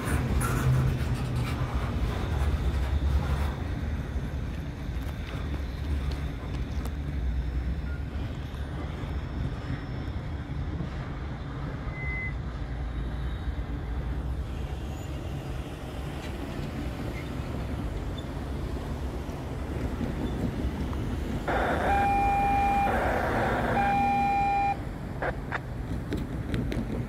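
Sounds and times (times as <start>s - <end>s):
freight cars rumbling on track: 0.0s - 27.0s
rush of noise: 20.0s - 26.4s.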